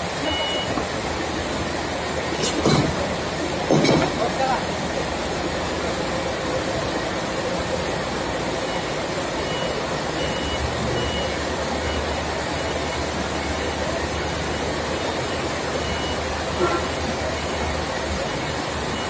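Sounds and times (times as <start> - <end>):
forklift engine running: 0.0 - 19.0
faint short high beep: 0.2 - 0.7.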